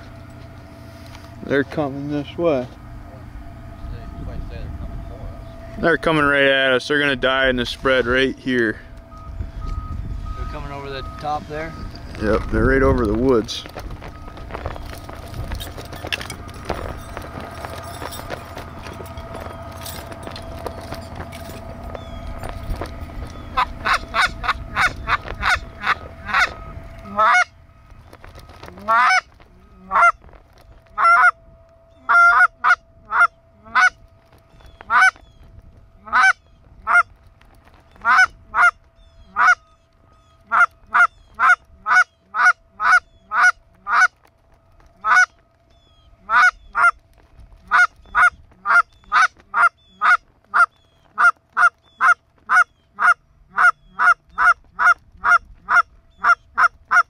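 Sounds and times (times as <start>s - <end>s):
goose honking: 23.2s - 27.6s, 28.6s - 30.2s, 30.9s - 31.4s, 32.0s - 34.0s, 34.8s - 35.2s, 36.0s - 37.1s, 38.0s - 39.7s, 40.3s - 44.2s, 45.0s - 45.4s, 46.2s - 47.0s, 47.6s - 57.0s.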